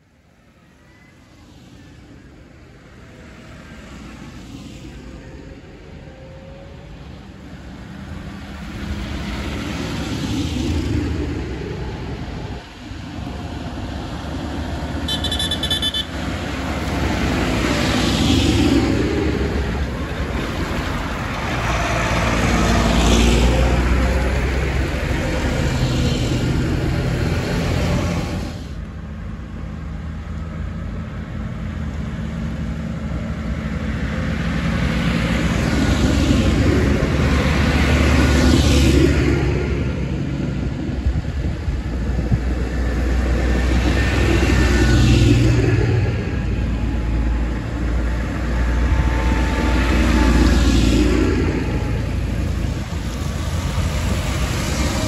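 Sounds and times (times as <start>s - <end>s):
tractor diesel engines passing: 0.0s - 55.0s
short horn toot: 15.1s - 16.1s
tyres hissing on wet road: 16.1s - 29.2s, 32.7s - 55.0s.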